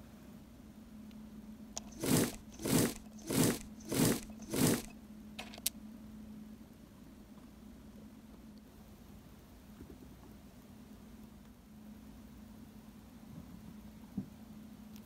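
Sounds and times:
potato masher squishing potatoes: 0:01.8 - 0:04.9.

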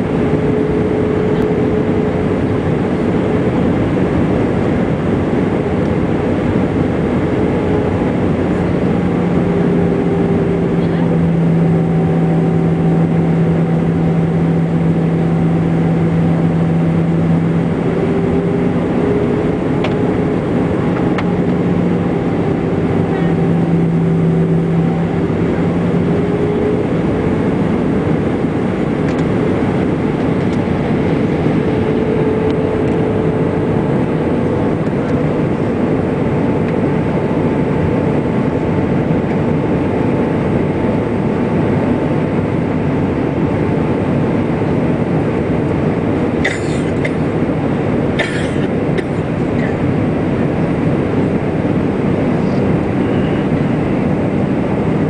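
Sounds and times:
humming engine tones: 0:00.0 - 0:55.0
jet engine cabin roar: 0:00.0 - 0:55.0.

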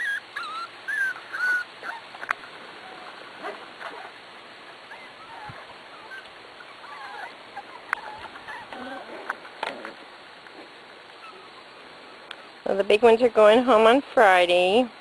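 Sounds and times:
puppies whining and whimpering: 0:00.0 - 0:04.2, 0:04.8 - 0:10.0, 0:11.2 - 0:12.6.

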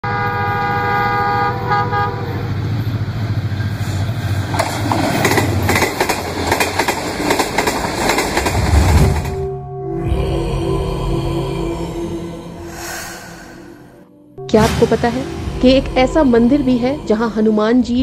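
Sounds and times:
diesel locomotive horn: 0:00.0 - 0:02.9
passing train rumble: 0:00.0 - 0:18.0
train wheels clattering on rails: 0:02.9 - 0:09.4.

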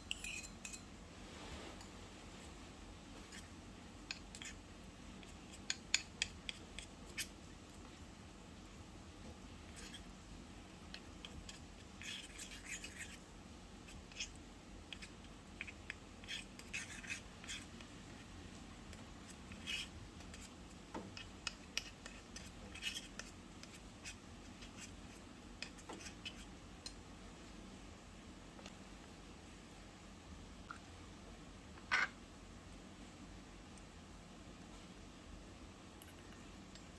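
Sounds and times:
spoon scraping metal bowl: 0:00.0 - 0:00.9, 0:14.1 - 0:17.7.

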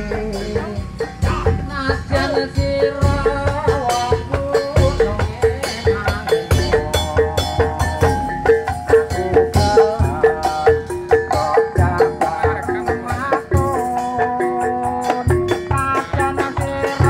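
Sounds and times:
large drum beats: 0:00.0 - 0:17.0
wavering melody: 0:00.0 - 0:17.0.

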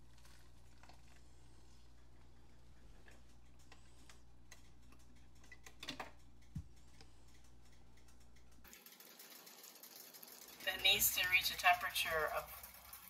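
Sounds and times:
clicks: 0:03.0 - 0:08.7.

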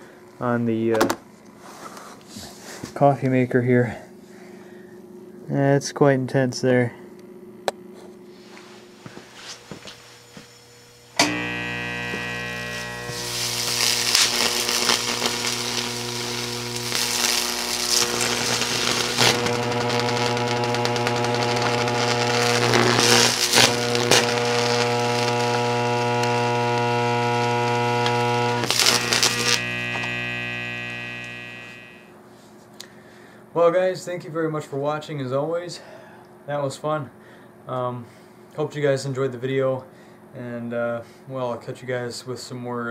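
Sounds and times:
loud mains buzz: 0:07.2 - 0:32.2
crackling of sparks: 0:09.0 - 0:32.1.

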